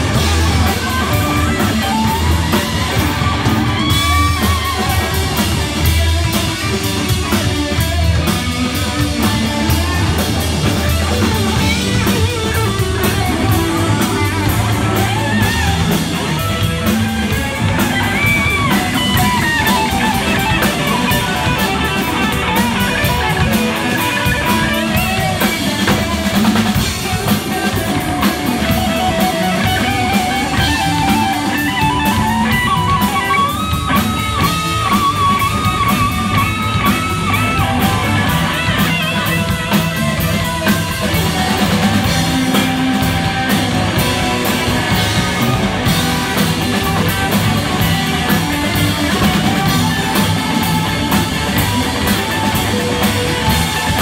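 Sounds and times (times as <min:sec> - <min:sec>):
lead guitar bending notes: 0:00.0 - 0:54.0
live rock band playing: 0:00.0 - 0:54.0.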